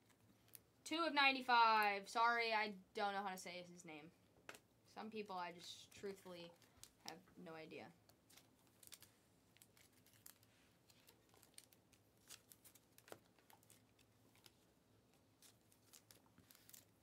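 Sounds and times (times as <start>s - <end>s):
plastic sleeves rustling: 5.3s - 17.0s.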